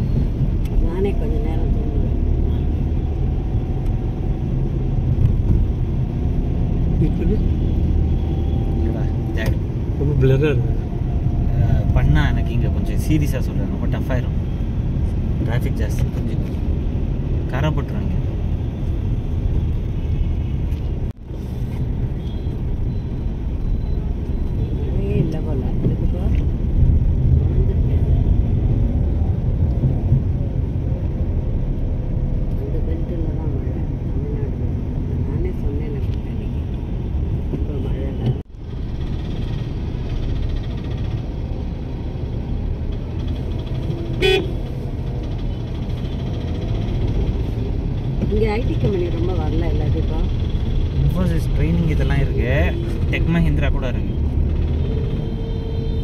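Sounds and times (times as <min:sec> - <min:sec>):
vehicle rumbling in traffic: 0:00.0 - 0:56.0
vehicle horn honk: 0:44.1 - 0:44.6.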